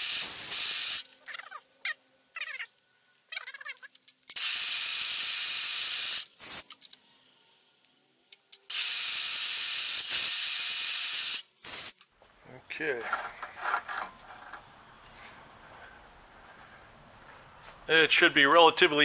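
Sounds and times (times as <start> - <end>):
high hissing bursts: 0.0 - 1.1, 4.4 - 6.7, 8.7 - 12.0
metal scraping and clicking: 13.0 - 15.2.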